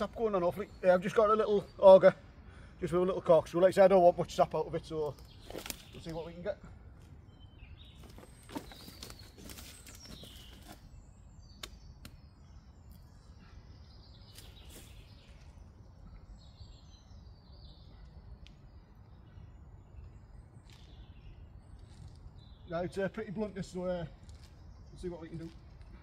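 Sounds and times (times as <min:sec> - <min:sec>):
birds chirping: 0:00.0 - 0:26.0
handling clicks and rustles: 0:08.0 - 0:10.9.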